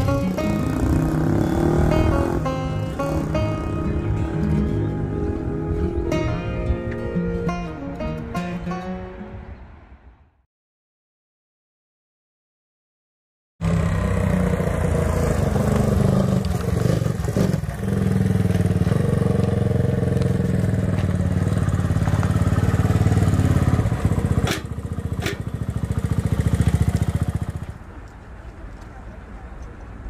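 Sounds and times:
motorcycle engine running: 0.0s - 4.1s, 13.6s - 27.8s.

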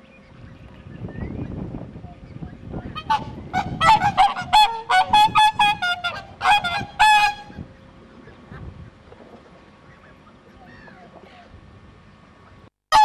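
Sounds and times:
swan calling: 3.0s - 7.6s.

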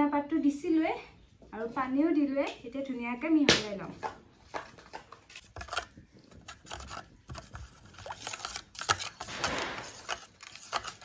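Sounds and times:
spoon clinking and scraping bowl: 4.7s - 11.0s.

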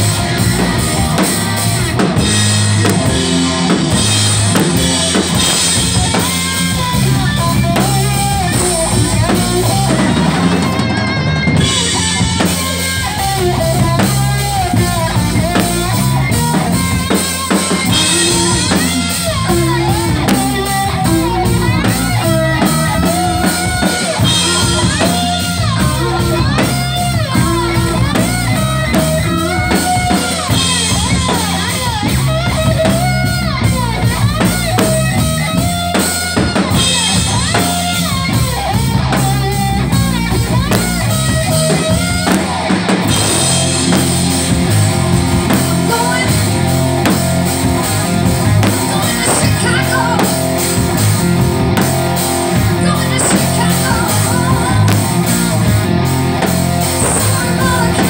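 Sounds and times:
bass guitar: 0.0s - 58.0s
electric guitar: 0.0s - 58.0s
pounding drum kit: 0.0s - 58.0s
person singing: 17.8s - 28.0s, 57.0s - 58.0s.

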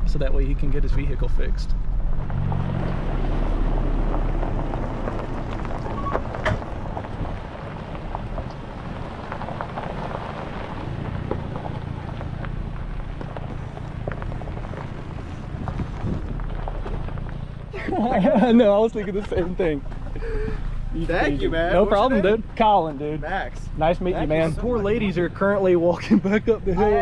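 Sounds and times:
vehicle engine humming: 0.0s - 27.0s
crackling with clicks: 4.0s - 17.7s.

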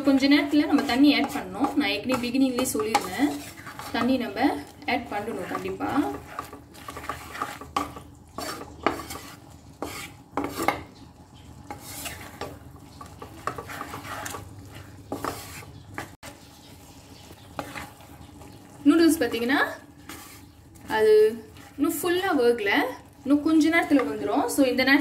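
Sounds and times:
wooden spatula scraping frying pan: 0.0s - 11.0s, 11.6s - 25.0s.

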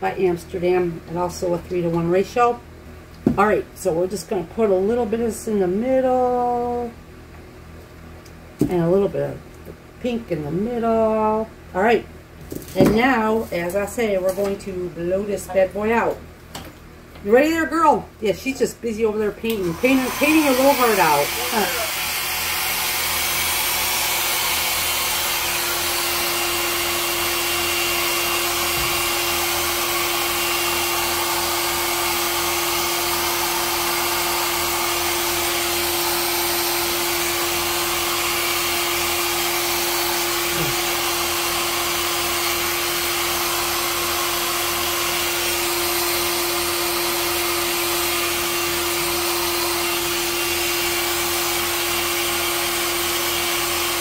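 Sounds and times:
hair dryer blowing: 17.3s - 54.0s.

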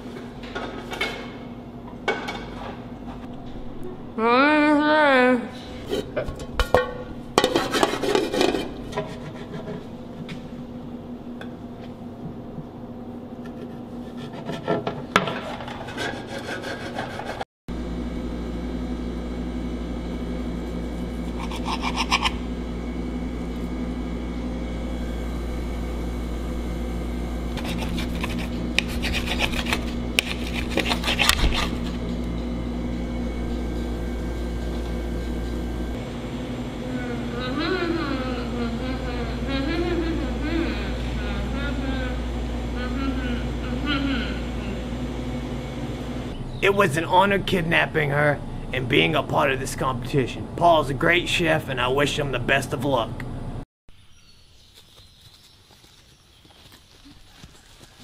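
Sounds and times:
steady low hum: 0.0s - 53.6s
knife scraping steak in metal pan: 7.4s - 9.8s, 21.1s - 22.4s, 27.5s - 31.9s.

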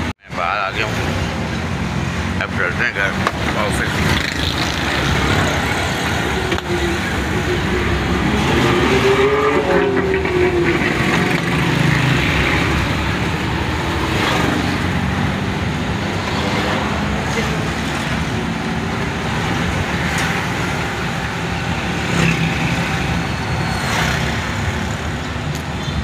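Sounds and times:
car engine: 0.0s - 26.0s
road noise inside car: 0.0s - 26.0s.

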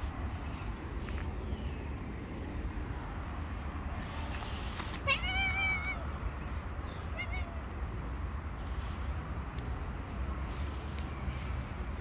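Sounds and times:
cat meowing: 5.0s - 6.2s, 7.0s - 7.8s.

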